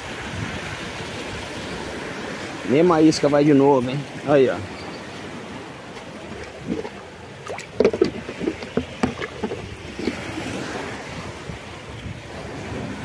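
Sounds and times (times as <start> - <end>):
wind noise: 0.0 - 2.4, 4.6 - 13.0
sea surf: 0.0 - 13.0
irregular clicks and knocks: 7.8 - 10.2.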